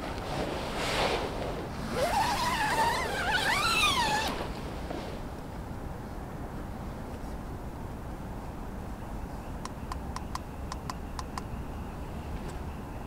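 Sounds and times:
low background noise: 0:00.0 - 0:13.0
tent door zipper: 0:00.3 - 0:05.2.

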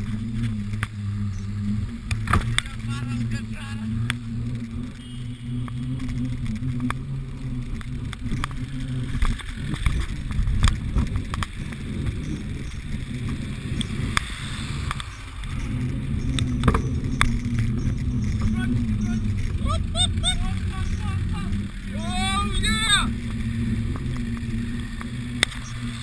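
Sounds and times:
steady low hum: 0:00.0 - 0:26.0
wind rumble: 0:00.0 - 0:26.0
bike rattling clicks: 0:05.7 - 0:18.5
tyre noise: 0:05.7 - 0:26.0.

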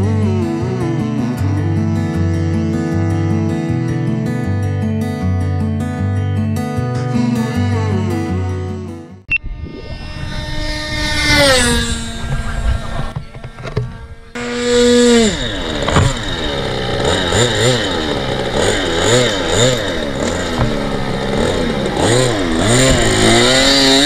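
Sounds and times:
model airplane engine revving: 0:09.8 - 0:24.0.

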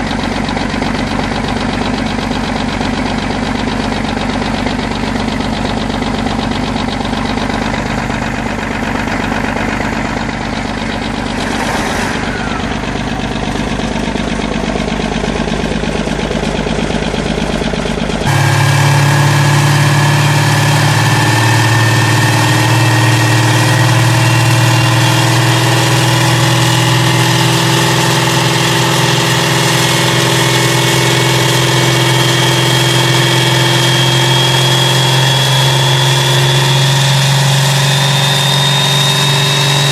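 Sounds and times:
diesel engine idling: 0:00.0 - 0:39.9
whining tones: 0:18.3 - 0:39.9.

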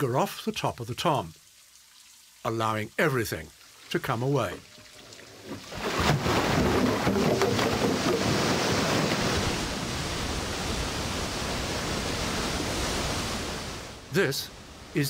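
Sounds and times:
water rushing through a flume: 0:04.4 - 0:15.0.

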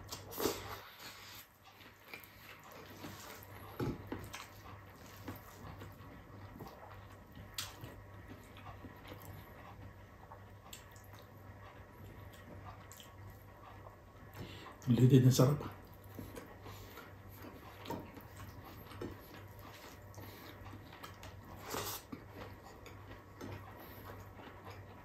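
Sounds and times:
chewing: 0:00.0 - 0:14.9, 0:15.6 - 0:25.0
faint low hum: 0:00.0 - 0:25.0.

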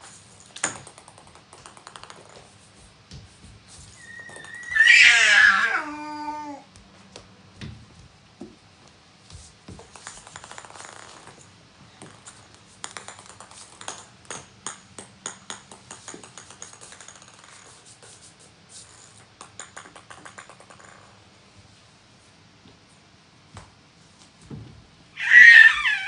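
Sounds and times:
plastic balls bouncing on wooden floor: 0:00.4 - 0:05.4, 0:09.3 - 0:17.8, 0:18.9 - 0:21.2.

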